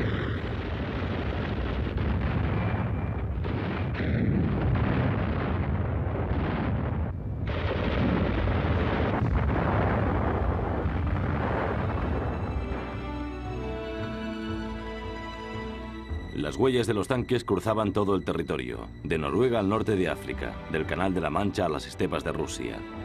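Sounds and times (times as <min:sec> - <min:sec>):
explosions and gunfire: 0:00.0 - 0:13.0
heavy low rumble: 0:00.0 - 0:19.4.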